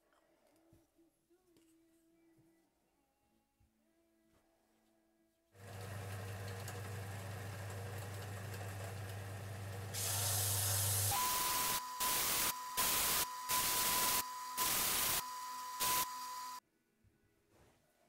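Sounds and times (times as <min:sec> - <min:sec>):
hiss of wood sanding: 0:10.0 - 0:15.2.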